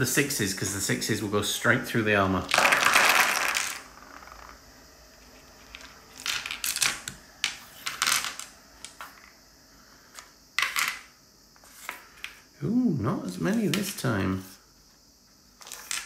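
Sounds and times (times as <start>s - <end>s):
plastic dice clattering: 2.4s - 4.6s, 5.6s - 9.3s, 10.6s - 11.1s.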